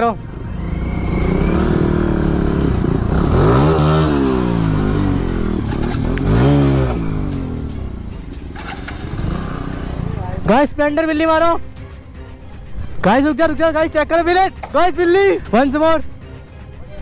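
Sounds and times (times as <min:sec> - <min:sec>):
motorcycle engines revving: 0:00.0 - 0:10.6.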